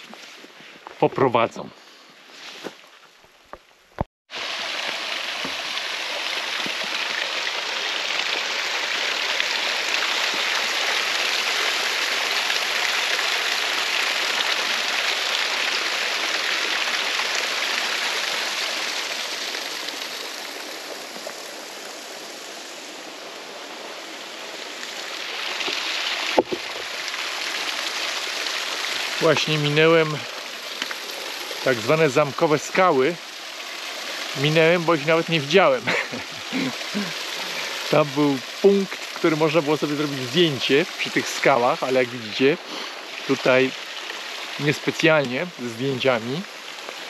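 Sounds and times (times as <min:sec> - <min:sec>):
stream rushing: 0:04.3 - 0:47.0.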